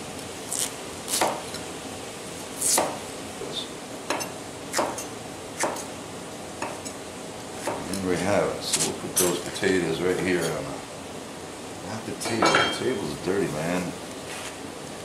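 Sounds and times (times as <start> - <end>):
knife chopping potatoes on board: 1.1 - 1.4, 2.6 - 3.0, 4.1 - 5.0, 5.6 - 5.8.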